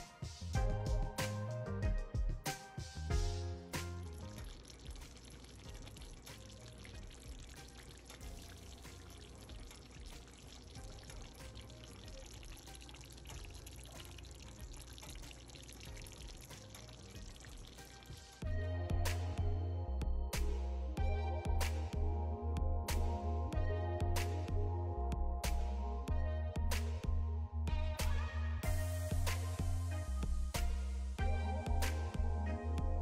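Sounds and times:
food simmering in gravy: 0:04.1 - 0:18.5.

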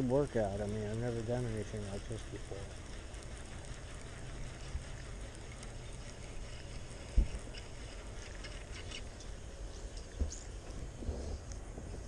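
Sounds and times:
fishing reel clicks: 0:00.0 - 0:09.4.

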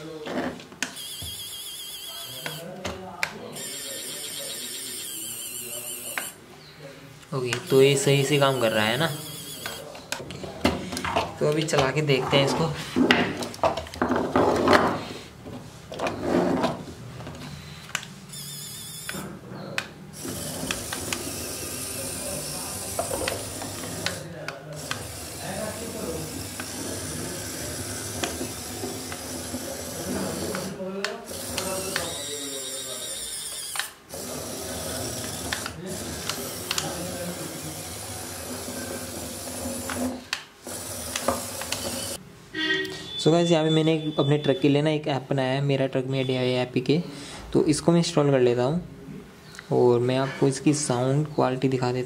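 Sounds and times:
small electric motor and gears: 0:01.0 - 0:02.6, 0:03.6 - 0:06.4, 0:07.6 - 0:09.8, 0:18.3 - 0:19.3, 0:20.2 - 0:24.2, 0:24.8 - 0:42.2
steady high hiss: 0:20.2 - 0:28.3
sharp clicks: 0:35.2 - 0:37.0.

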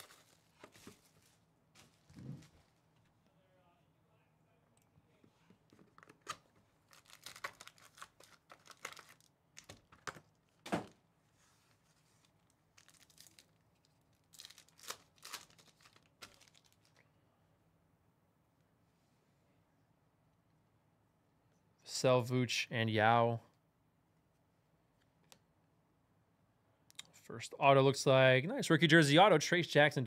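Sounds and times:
cardboard and wrappers tearing: 0:00.0 - 0:01.2, 0:06.2 - 0:09.8, 0:12.3 - 0:17.0.

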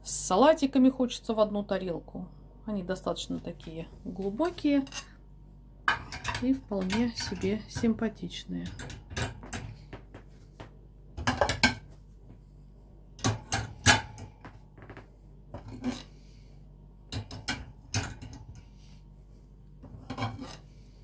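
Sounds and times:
plates clinking in wire rack: 0:05.9 - 0:08.0.

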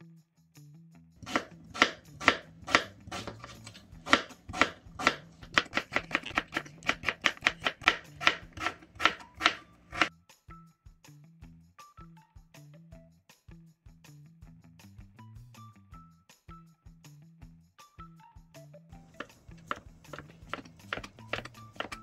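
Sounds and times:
knife slicing sweet potato: 0:01.2 - 0:10.1, 0:19.1 - 0:22.0
knife tapping plastic board: 0:01.2 - 0:10.1, 0:19.1 - 0:22.0.

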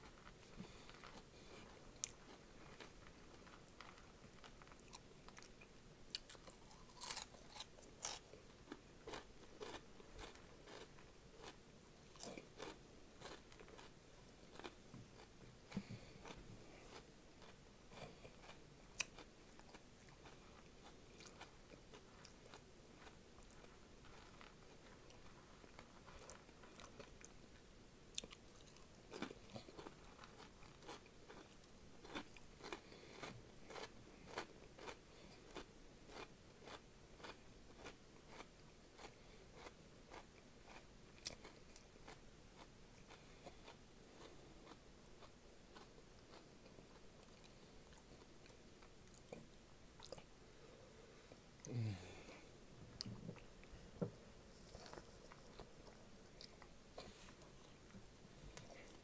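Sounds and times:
crisp snacks crunching: 0:02.0 - 0:11.6, 0:12.2 - 0:13.9.

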